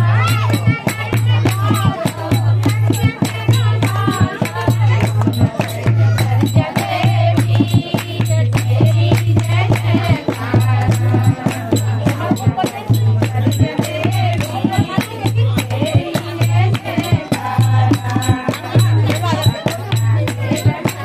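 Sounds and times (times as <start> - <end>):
hand drum: 0.0 - 21.0
rhythmic hand-clapping: 0.0 - 21.0
women singing together: 0.0 - 21.0.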